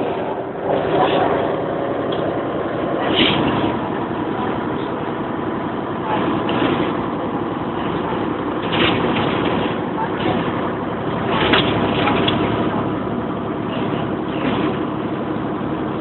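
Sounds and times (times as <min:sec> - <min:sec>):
coach engine drone: 0:00.0 - 0:16.0
road noise: 0:00.0 - 0:16.0.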